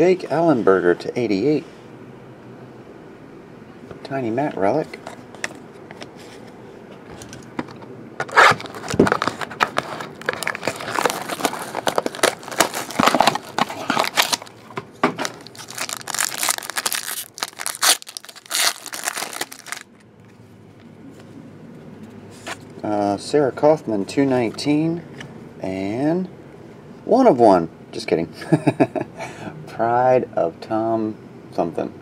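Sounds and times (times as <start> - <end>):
plastic wrapper tearing and crinkling: 8.2 - 14.6, 15.2 - 19.9.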